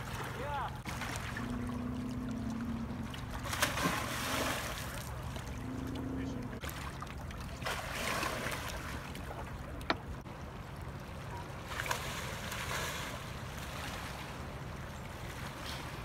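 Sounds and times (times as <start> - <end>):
low rumble of wind and water: 0.0 - 16.0.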